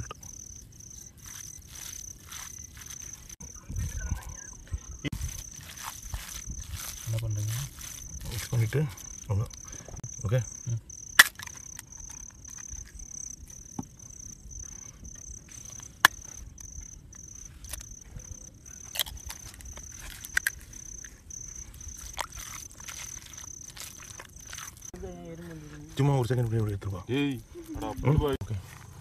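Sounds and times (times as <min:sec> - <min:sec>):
crickets chirping: 0:00.0 - 0:29.0
hands squishing food in bowl: 0:01.2 - 0:04.2, 0:05.0 - 0:09.8, 0:18.9 - 0:24.9.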